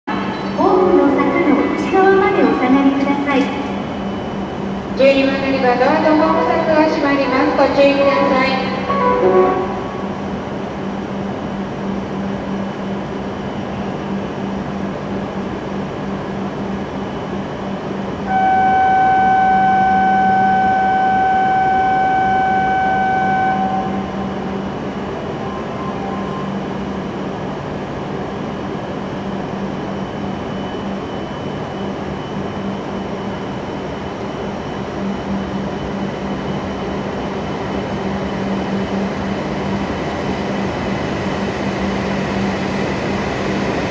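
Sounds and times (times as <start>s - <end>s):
train electrical hum: 0.1s - 43.9s
electronic warning tone: 7.1s - 10.2s, 18.3s - 26.8s.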